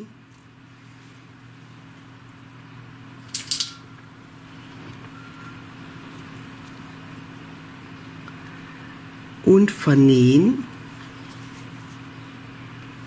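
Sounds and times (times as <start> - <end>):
low hum: 0.0 - 9.5.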